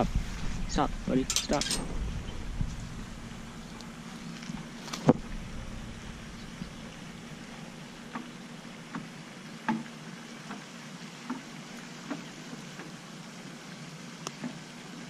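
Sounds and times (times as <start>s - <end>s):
steady faint hiss: 0.0s - 9.6s.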